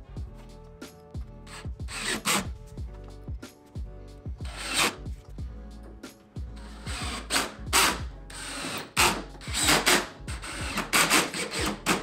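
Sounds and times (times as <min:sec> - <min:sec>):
cordless drill driving screws: 0:01.5 - 0:02.4, 0:04.5 - 0:05.0, 0:06.6 - 0:12.0
drill clutch ratcheting: 0:06.6 - 0:12.0.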